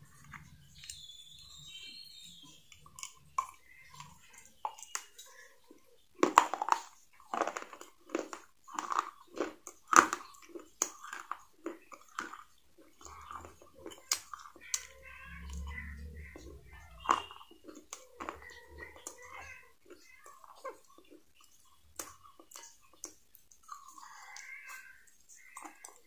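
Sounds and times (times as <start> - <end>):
crunchy chewing of fried chicken: 2.5 - 26.0
faint low hum: 9.1 - 26.0.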